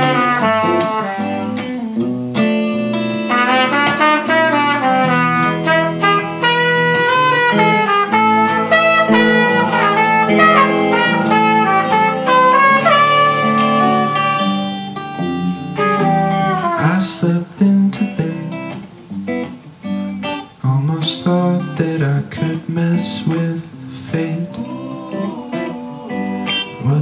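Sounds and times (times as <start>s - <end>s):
live band playing: 0.0s - 17.4s, 24.4s - 26.8s
trumpet melody: 0.0s - 18.8s.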